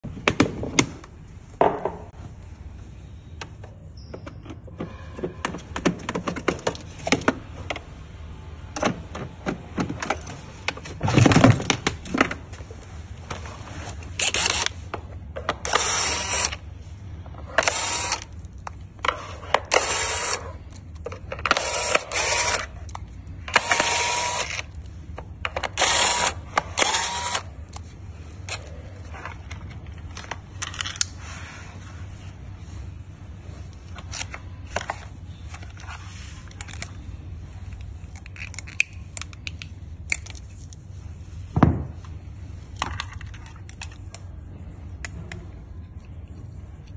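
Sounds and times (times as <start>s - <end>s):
cordless screwdriver whirring: 14.2s - 14.8s, 15.7s - 16.6s, 17.6s - 18.3s, 19.7s - 20.5s, 21.5s - 22.7s, 23.5s - 24.7s, 25.6s - 27.5s.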